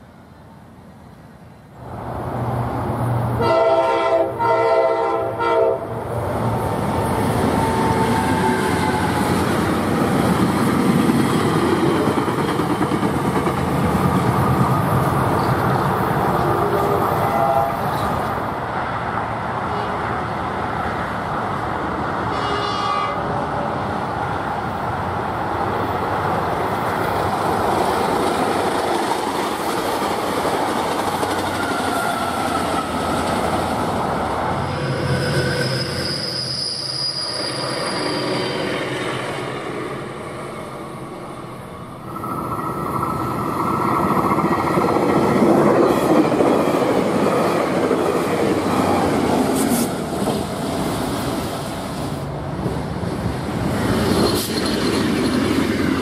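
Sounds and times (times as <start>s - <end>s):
train rumbling past: 0.0s - 56.0s
train horn chord: 3.4s - 6.0s, 17.2s - 17.8s, 22.3s - 23.3s.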